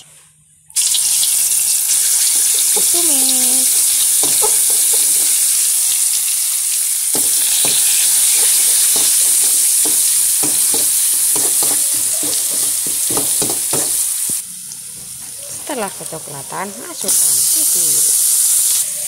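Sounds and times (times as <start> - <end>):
paste sizzling in hot oil: 0.8 - 19.0
spatula scraping a wok: 7.2 - 14.4.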